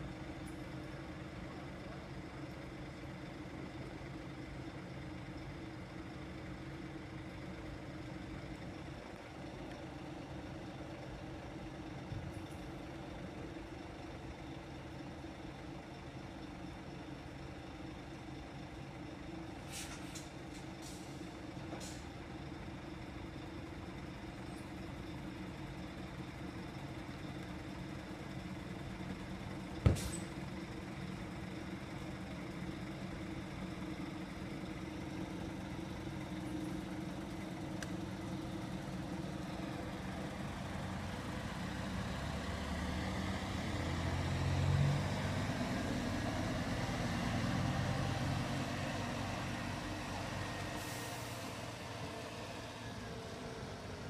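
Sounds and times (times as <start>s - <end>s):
city traffic rumble: 0.0s - 54.0s
diesel engine idling: 20.3s - 45.0s.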